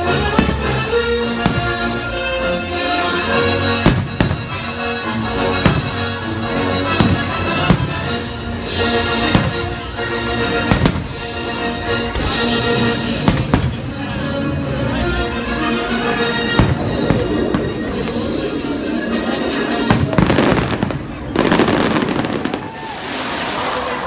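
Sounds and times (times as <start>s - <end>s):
loud music: 0.0s - 22.8s
fireworks bursting: 0.3s - 2.0s, 3.8s - 4.8s, 5.6s - 6.0s, 7.0s - 9.8s, 10.6s - 11.3s, 12.1s - 14.0s, 16.3s - 24.0s.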